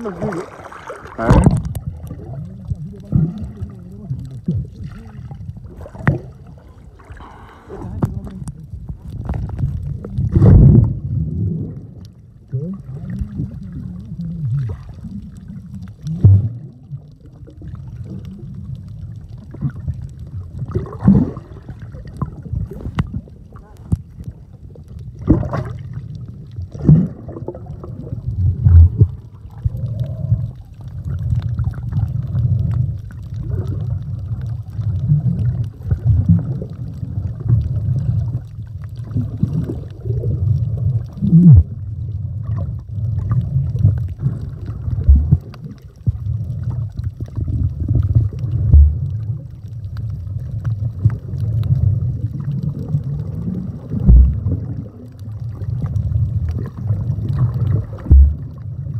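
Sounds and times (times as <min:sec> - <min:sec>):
low underwater thumps: 0:00.0 - 0:02.3, 0:05.6 - 0:06.5, 0:26.7 - 0:30.2, 0:42.4 - 0:49.4, 0:53.8 - 0:54.8, 0:55.9 - 0:58.9
underwater rumbling and gurgling: 0:00.0 - 0:58.9.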